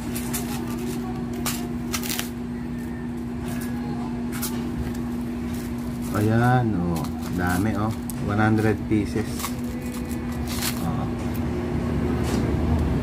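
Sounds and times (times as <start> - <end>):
steady low hum: 0.0 - 13.0
plastic packaging crinkling: 4.4 - 11.1.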